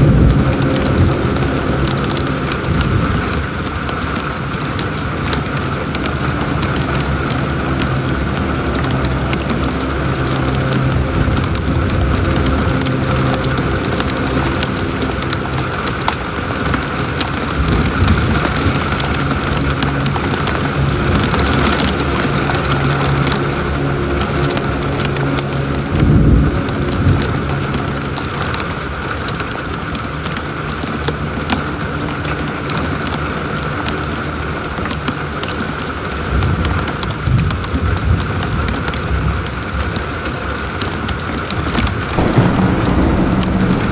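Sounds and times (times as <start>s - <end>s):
heavy rain on car: 0.0s - 43.9s
low thump: 42.1s - 43.9s.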